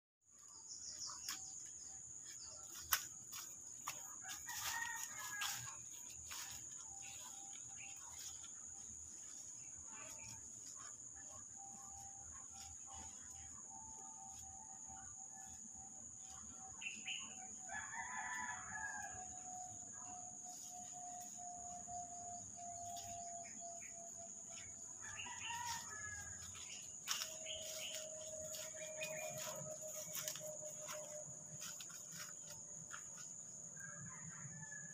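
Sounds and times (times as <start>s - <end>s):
rooster crowing: 4.2s - 5.8s, 17.6s - 20.0s, 25.0s - 31.0s, 33.7s - 34.9s
high-pitched insect drone: 4.2s - 33.2s.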